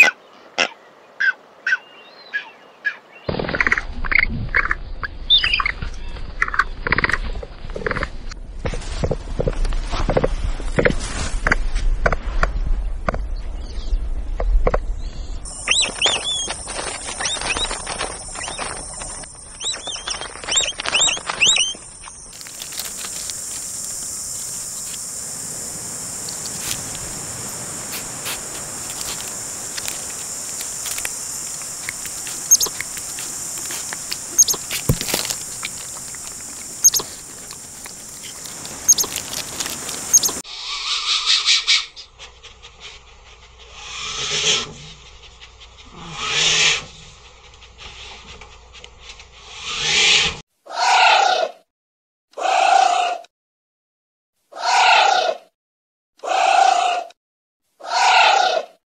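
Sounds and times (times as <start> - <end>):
high insect buzz: 15.5 - 40.4
capybara squeaky chirps: 15.6 - 21.8, 28.9 - 40.4
capybara clicking: 26.2 - 40.4.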